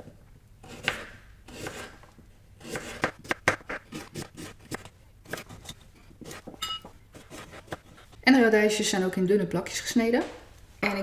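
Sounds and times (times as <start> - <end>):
knife slicing on cutting board: 7.1 - 8.1.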